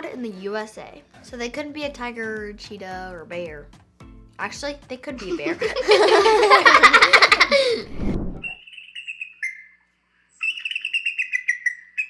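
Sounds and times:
children laughing: 5.2 - 7.9
eagle high-pitched piping call: 8.6 - 9.8, 10.4 - 12.0.

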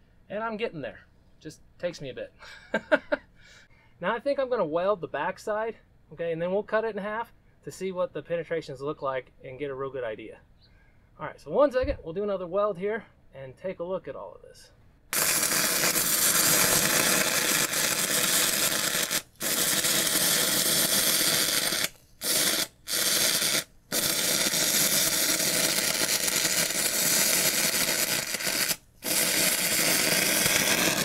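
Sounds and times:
welding arc crackling hiss: 15.1 - 31.0.

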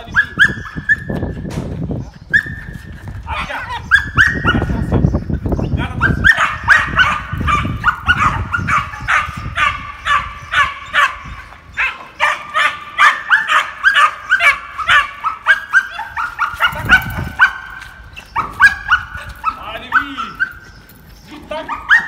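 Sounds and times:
puppy yapping and barking: 0.2 - 1.2, 2.3 - 2.6, 3.7 - 4.8, 6.0 - 20.6, 21.6 - 22.0.

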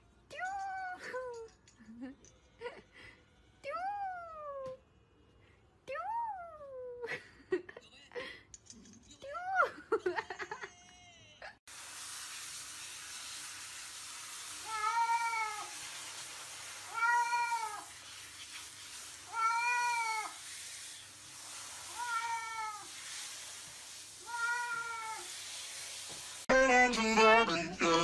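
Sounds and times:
shower spraying water: 11.7 - 27.1
cat meowing: 14.7 - 15.7, 16.9 - 17.9, 19.3 - 20.4, 21.9 - 22.9, 24.2 - 25.3.

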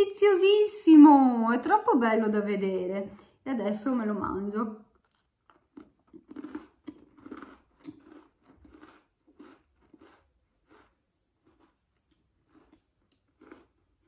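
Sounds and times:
crunchy cookie being chewed: 4.9 - 14.0.

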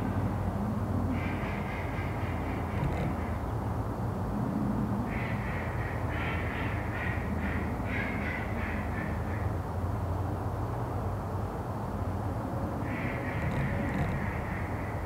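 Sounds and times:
steady low hum: 0.0 - 15.0
bird calling: 1.1 - 3.7, 12.8 - 15.0.

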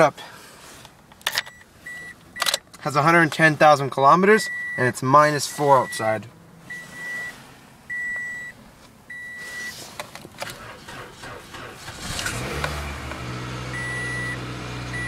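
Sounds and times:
car engine cranking and idling: 0.1 - 15.0
dashboard warning chime beeping: 1.4 - 2.7, 4.4 - 9.8, 13.7 - 15.0.

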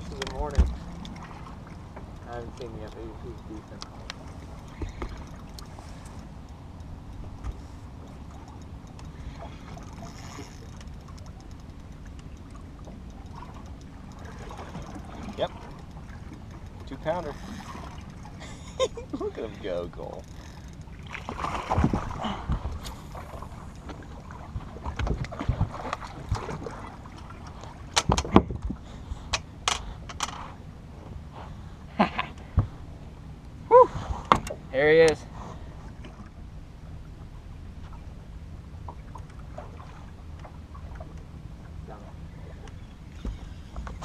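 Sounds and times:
small clicks and knocks: 0.0 - 1.2, 1.9 - 18.3, 27.6 - 28.7, 29.3 - 30.5
water lapping against boat hull: 0.0 - 44.0
faint ticks: 1.9 - 21.1
wind buffeting microphone: 20.4 - 26.9, 27.9 - 28.9.

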